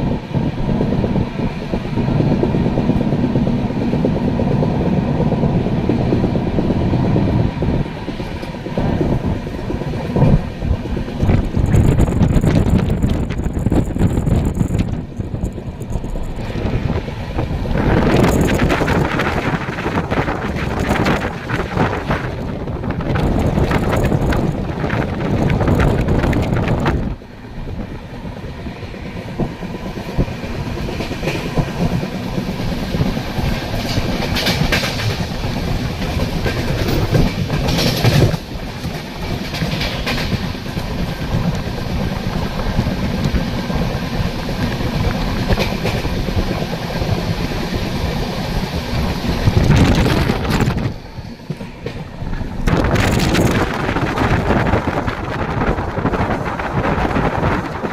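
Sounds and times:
wind rushing: 0.0s - 57.9s
train wheels clattering over joints: 30.0s - 57.9s.

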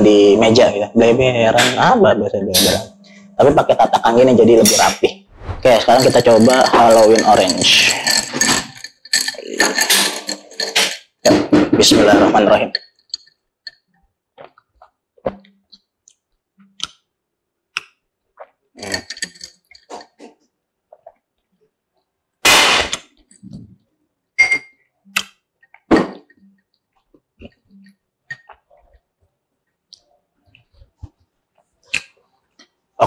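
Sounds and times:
ice clinking in glass: 5.8s - 11.4s, 18.8s - 19.6s.

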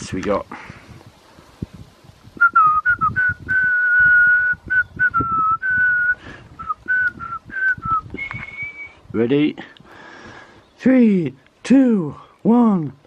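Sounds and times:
person whistling a tune: 2.4s - 9.0s.

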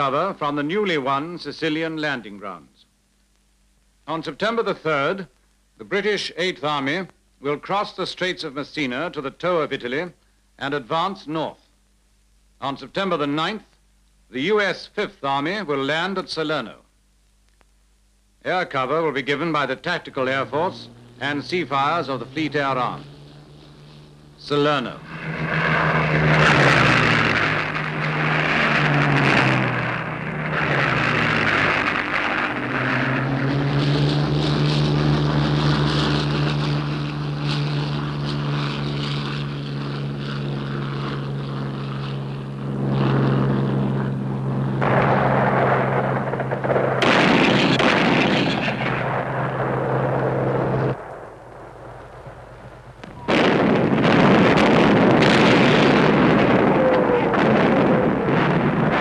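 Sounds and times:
propeller aircraft engine drone: 18.5s - 59.0s
loud rushing noise: 20.3s - 36.9s, 44.5s - 59.0s.

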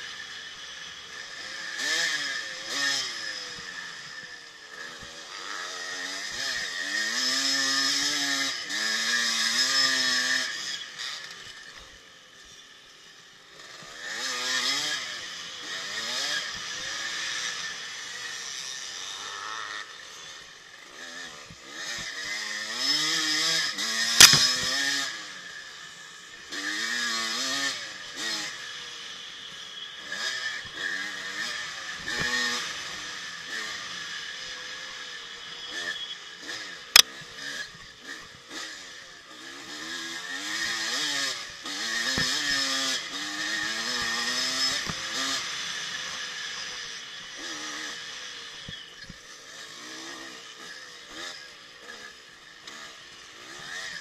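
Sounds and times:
two-stroke engine revving: 0.0s - 54.0s.

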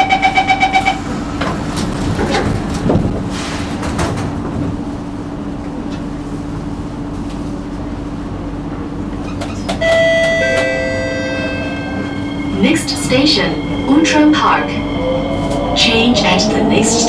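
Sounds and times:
train carriage hum: 0.0s - 17.0s
train doors sliding shut: 1.0s - 6.2s.

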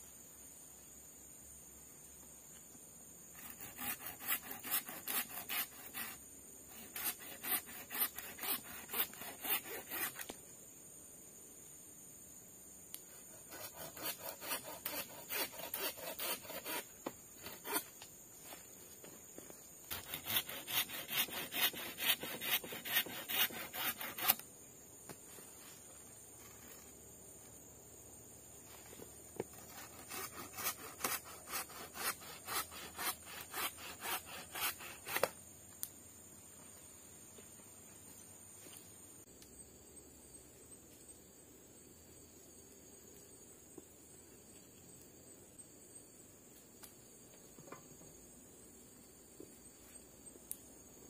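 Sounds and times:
hand saw cutting wood: 3.4s - 10.3s, 13.3s - 17.9s, 19.9s - 24.4s, 29.5s - 35.4s.

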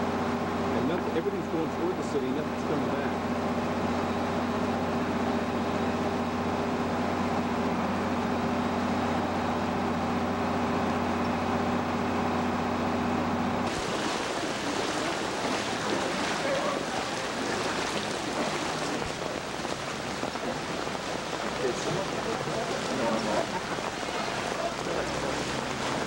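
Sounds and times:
mechanical hum: 0.0s - 26.0s
rain and floodwater hiss: 0.0s - 26.0s
constant rushing noise: 13.6s - 26.0s.

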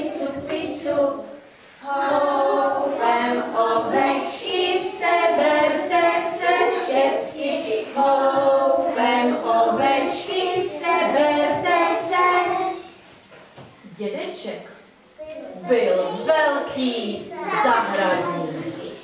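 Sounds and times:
children singing together: 0.0s - 13.0s.

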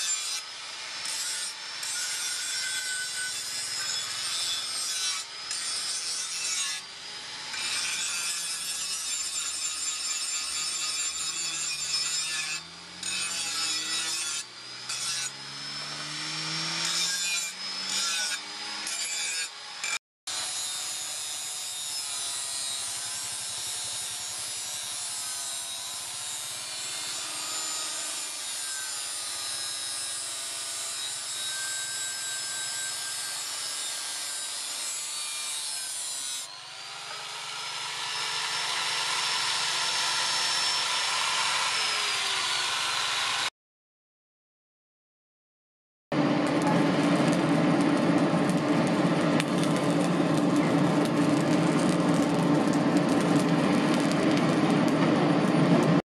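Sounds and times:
angle grinder grinding steel: 0.0s - 43.5s.

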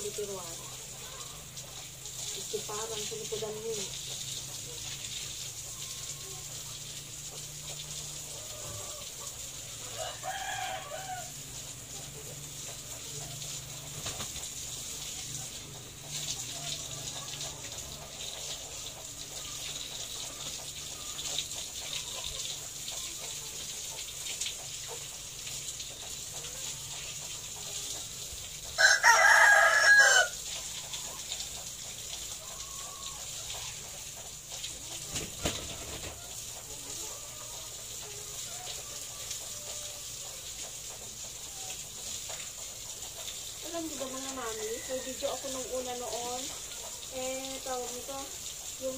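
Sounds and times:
rooster crowing: 8.3s - 11.6s, 28.8s - 30.4s, 37.1s - 40.3s, 44.4s - 45.8s.

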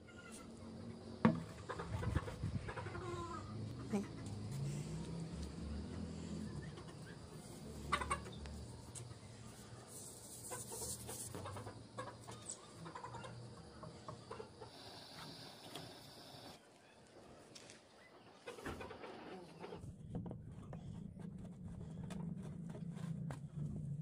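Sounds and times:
chickens clucking: 0.1s - 4.6s, 5.8s - 9.2s, 10.2s - 16.6s, 18.0s - 19.8s.

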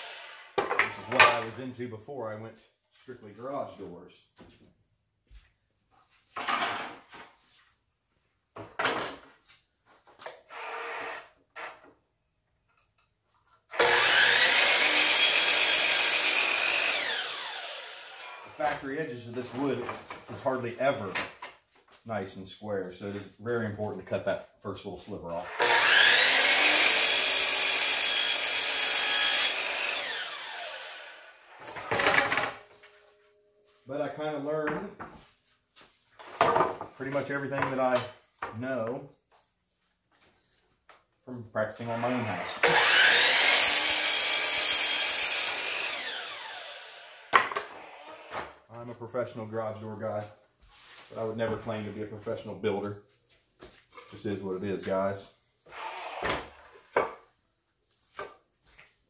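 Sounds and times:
miter saw cutting wood: 0.0s - 1.4s, 13.8s - 18.7s, 25.5s - 32.6s, 41.8s - 48.5s, 55.7s - 56.6s.

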